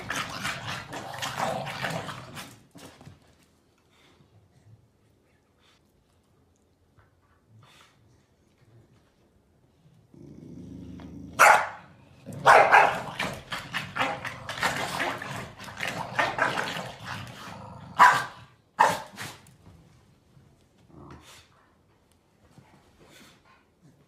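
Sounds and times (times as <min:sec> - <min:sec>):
dogs growling: 0:00.0 - 0:02.7, 0:10.0 - 0:11.4, 0:12.0 - 0:18.0
dogs barking: 0:11.4 - 0:14.3, 0:18.0 - 0:19.1.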